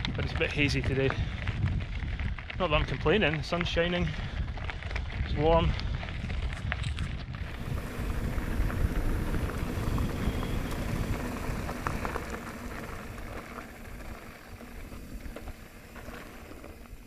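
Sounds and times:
bike tyres crunching on gravel: 0.0s - 17.0s.

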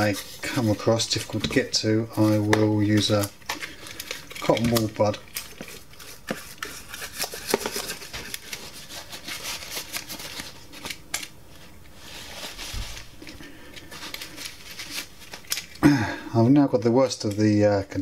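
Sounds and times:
brush scrubbing plastic parts: 0.0s - 11.0s
paper towel rubbing: 12.0s - 13.2s.

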